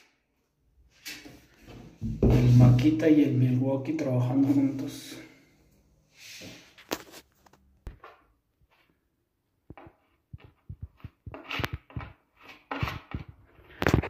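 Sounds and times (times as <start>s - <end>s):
plastic spatula scraping and tapping: 9.6s - 14.0s.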